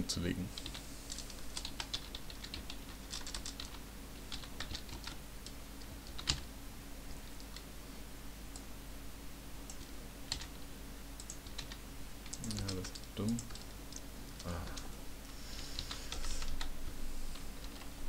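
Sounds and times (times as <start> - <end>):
steady low hum: 0.0 - 18.0
typing on a computer keyboard: 0.6 - 6.5, 9.7 - 10.6, 11.2 - 14.9.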